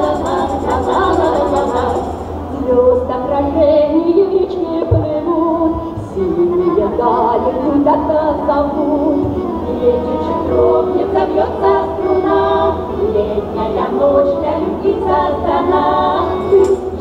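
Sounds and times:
women singing in harmony: 0.0 - 17.0.

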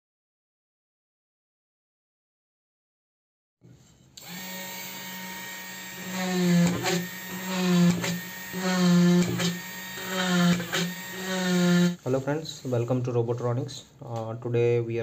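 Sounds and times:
electric motor humming: 4.2 - 12.0.

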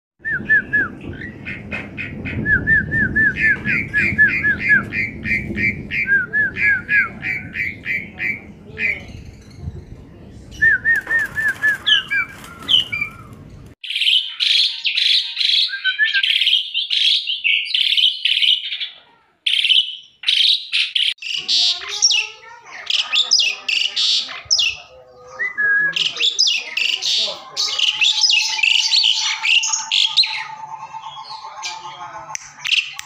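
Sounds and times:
starling singing: 3.3 - 9.9, 10.5 - 33.0.

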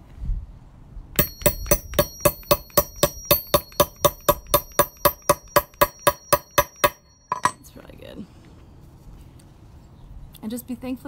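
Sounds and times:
hammer striking metal tool: 1.2 - 7.7.

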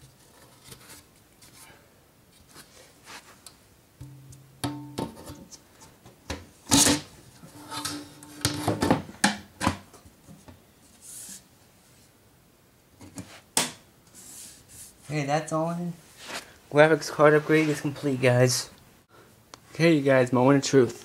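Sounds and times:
metal knocks: 4.0 - 5.3
metal panel scraping: 6.7 - 8.8.

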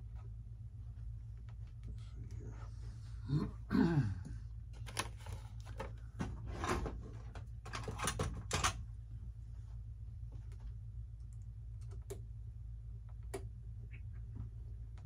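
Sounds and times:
steady low hum: 0.0 - 15.0
falling voice-like hum: 1.9 - 4.6.

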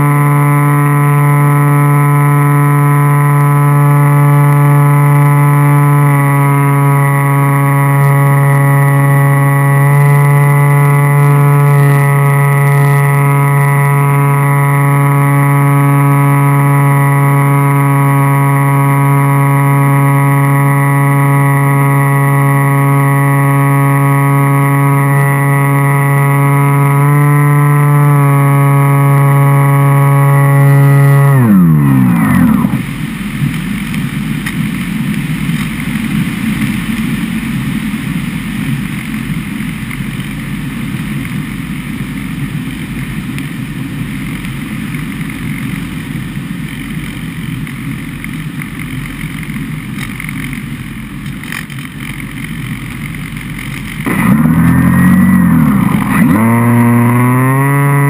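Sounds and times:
electric motor whine: 0.0 - 34.8, 49.9 - 58.0.

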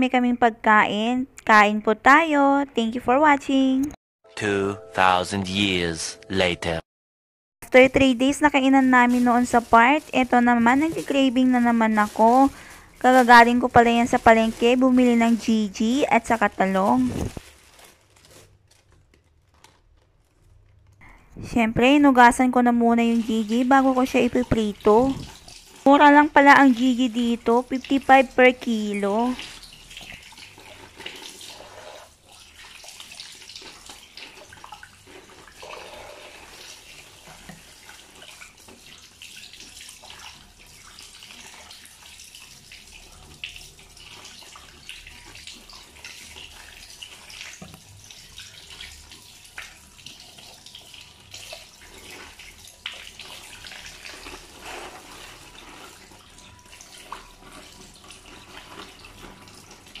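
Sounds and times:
tap water running: 7.8 - 17.4, 21.6 - 60.0
small splashes and knocks: 23.1 - 25.9, 29.3 - 31.6.

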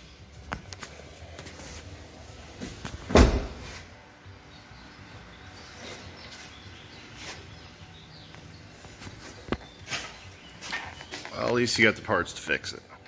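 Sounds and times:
truck door shutting: 3.0 - 3.8.

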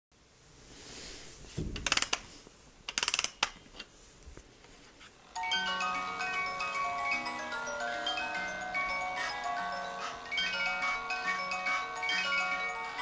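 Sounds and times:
music box tune: 5.4 - 13.0.

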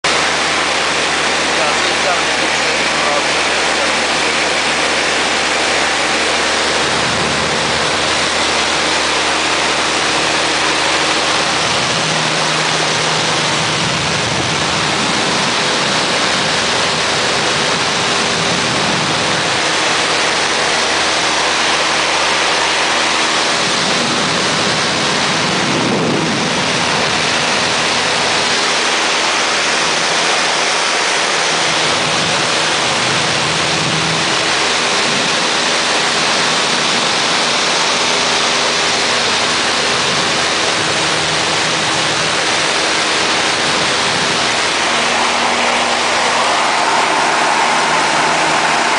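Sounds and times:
airplane engine and propeller: 0.0 - 48.9
wind rushing: 43.1 - 48.9.

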